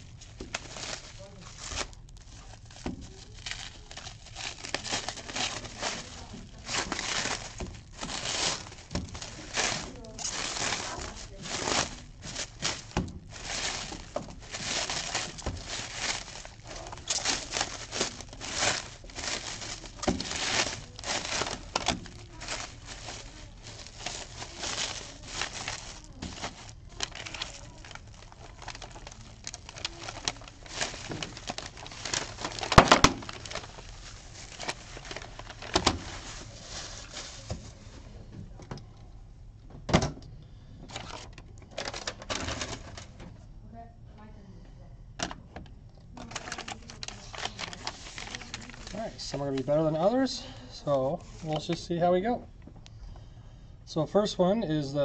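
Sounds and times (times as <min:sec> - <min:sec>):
packing paper rustling: 0:00.0 - 0:38.2, 0:40.9 - 0:43.3, 0:46.1 - 0:50.3, 0:51.1 - 0:52.3
plastic shrink-wrap crinkling: 0:00.0 - 0:38.2, 0:40.8 - 0:43.4, 0:46.1 - 0:52.8.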